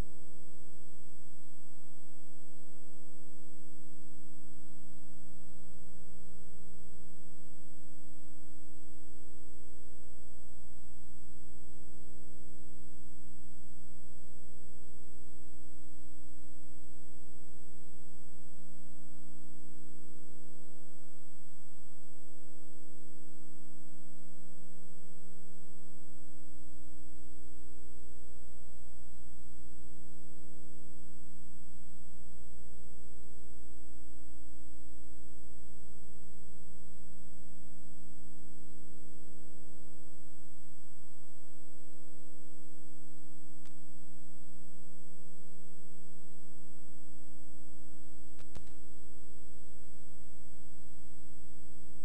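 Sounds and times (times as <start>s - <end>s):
electrical hum: 0.0s - 52.0s
thin high whine: 0.0s - 52.0s
faint click: 43.6s - 43.9s, 48.3s - 49.0s.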